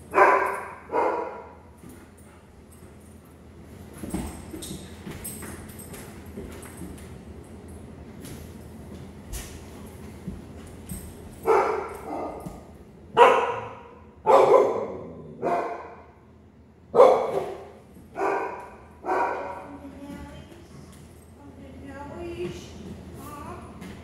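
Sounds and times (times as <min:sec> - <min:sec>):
dog barking: 0:00.1 - 0:01.6, 0:11.4 - 0:12.4, 0:13.1 - 0:16.0, 0:17.0 - 0:19.7.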